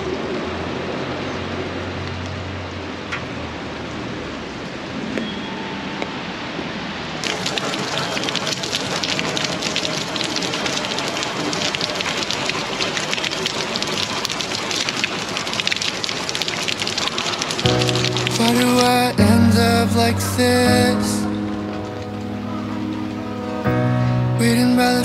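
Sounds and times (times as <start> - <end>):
rain falling on wet pavement: 7.1 - 25.0.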